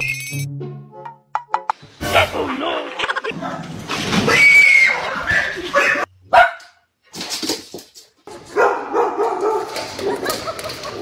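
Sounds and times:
dog barking: 5.8s - 6.8s, 8.5s - 9.8s.

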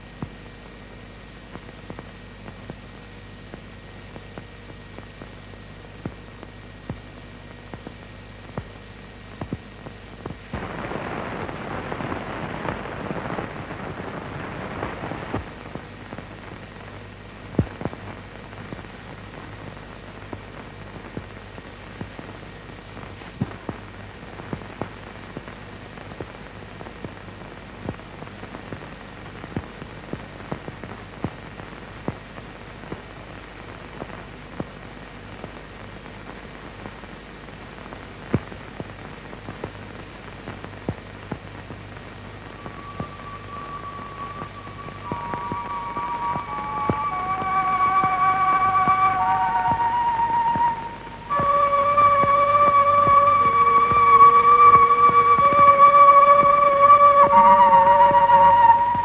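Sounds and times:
film surface noise hum: 0.0s - 59.0s
clicks and pops: 9.4s - 10.8s
rush of noise: 10.5s - 16.4s, 42.1s - 59.0s.

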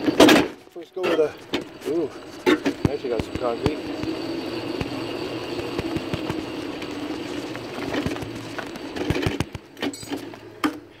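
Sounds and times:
wheel and frame clicks and knocks: 0.0s - 10.9s
electric go-kart humming: 1.2s - 10.9s.

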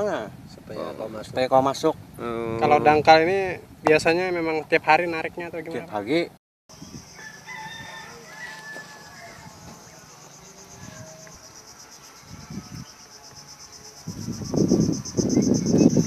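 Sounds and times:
insects chirring: 6.7s - 16.0s.

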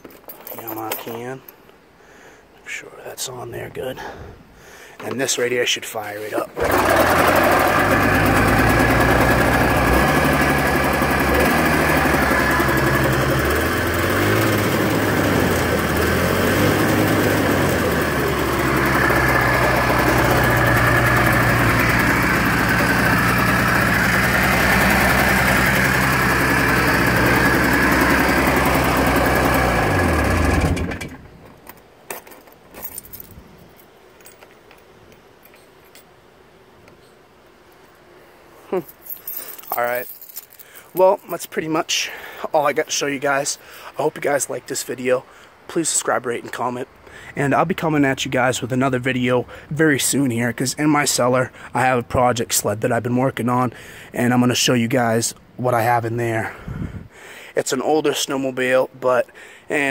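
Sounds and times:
snowmobile engine running: 6.6s - 31.0s.

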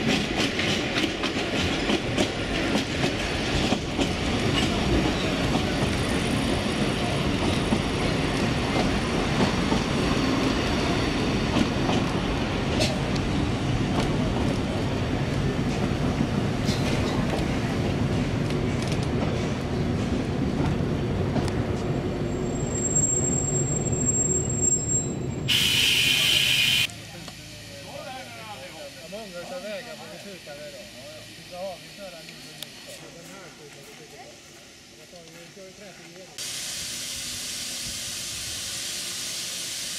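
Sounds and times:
train wheels rumbling on rail: 0.0s - 39.9s
high wheel squeal: 22.3s - 26.9s
loud hiss of steam: 25.5s - 33.5s, 36.4s - 39.9s.

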